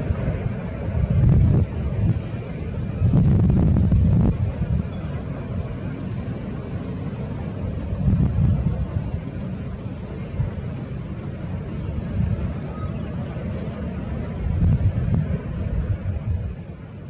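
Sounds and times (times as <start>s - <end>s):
distant jet engine rumble: 0.0s - 17.0s
bird chirps: 6.8s - 7.0s, 11.4s - 13.1s.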